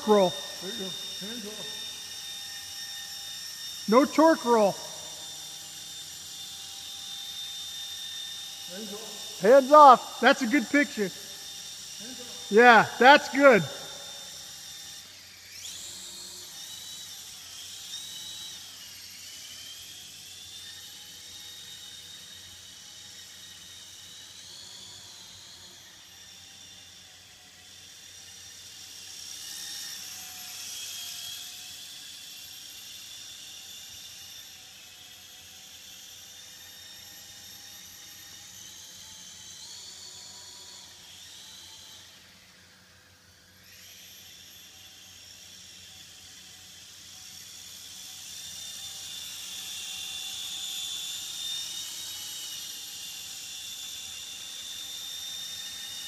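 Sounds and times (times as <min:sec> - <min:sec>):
model aircraft rotors whining: 0:00.0 - 0:09.8, 0:10.4 - 0:12.6, 0:13.3 - 0:56.0.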